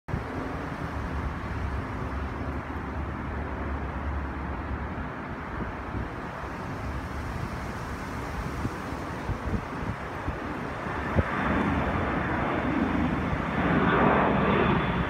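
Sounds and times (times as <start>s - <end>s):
airplane engine rumble: 0.1s - 15.0s.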